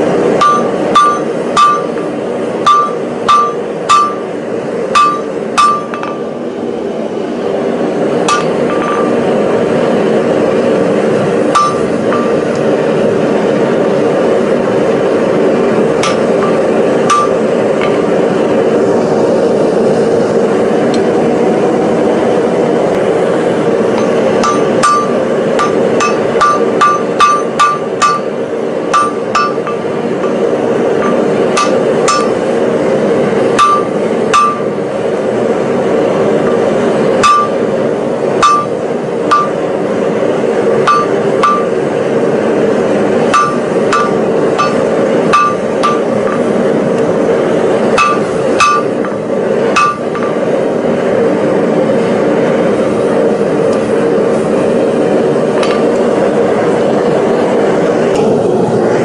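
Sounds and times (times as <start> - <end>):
steady droning noise: 0.0 - 59.0
hammer striking metal on anvil: 0.4 - 4.3, 5.0 - 6.3, 8.3 - 9.2, 11.5 - 12.6, 16.0 - 18.0, 23.9 - 32.5, 33.6 - 34.8, 36.4 - 37.6, 38.4 - 39.7, 40.8 - 41.9, 43.3 - 46.6, 48.0 - 50.5.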